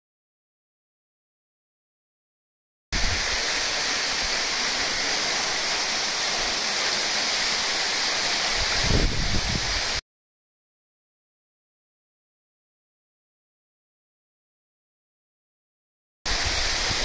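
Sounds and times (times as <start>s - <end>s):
waterfall rushing: 3.0s - 10.0s, 16.3s - 17.0s.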